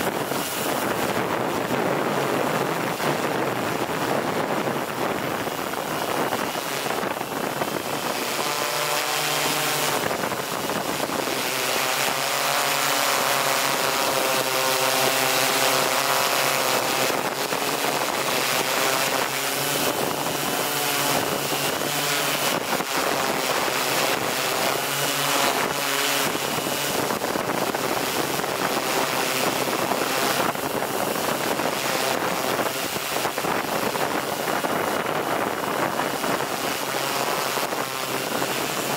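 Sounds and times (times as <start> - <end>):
model aircraft motor buzzing: 0.0 - 38.9
wind noise on microphone: 0.0 - 38.9.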